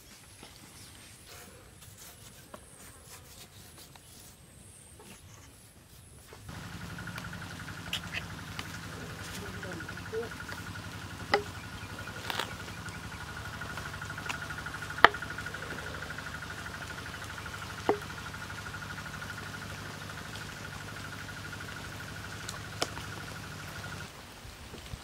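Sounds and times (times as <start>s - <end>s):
pulsing insect trill: 6.5s - 24.1s.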